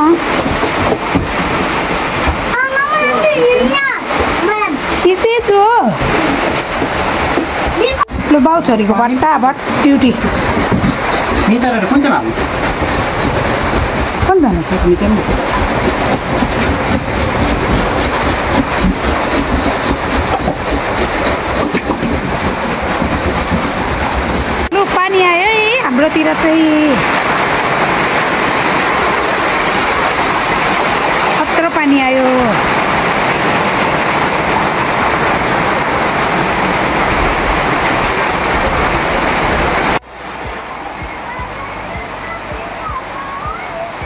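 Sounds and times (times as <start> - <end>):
heavy rain pouring: 0.0 - 44.0
vegetable grated on metal grater: 9.7 - 24.9.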